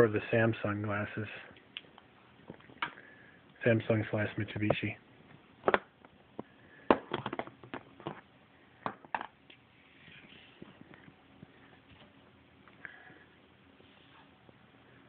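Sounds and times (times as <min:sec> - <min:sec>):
plastic glasses tapping and knocking: 0:05.6 - 0:05.9, 0:06.9 - 0:08.2.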